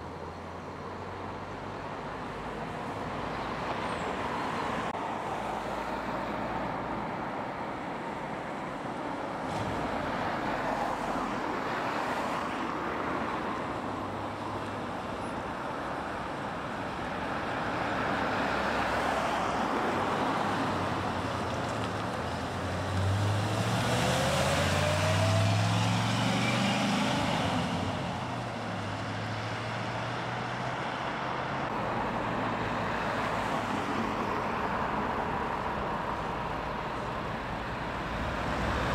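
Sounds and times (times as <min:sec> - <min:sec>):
cars driving past: 0:17.4 - 0:38.9
engine accelerating hard: 0:23.0 - 0:27.9.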